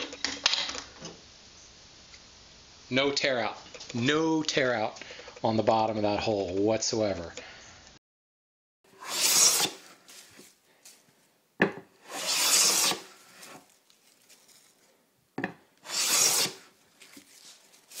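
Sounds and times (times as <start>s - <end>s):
spokeshave cutting wood: 8.9s - 10.0s, 12.0s - 13.7s, 15.8s - 16.7s.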